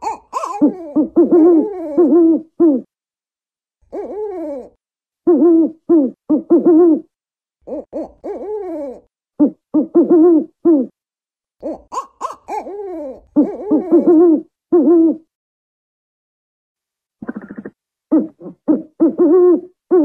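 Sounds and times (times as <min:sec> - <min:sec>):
owl hooting: 0:00.0 - 0:02.9, 0:03.9 - 0:07.1, 0:07.7 - 0:10.9, 0:11.6 - 0:15.2, 0:17.2 - 0:20.0.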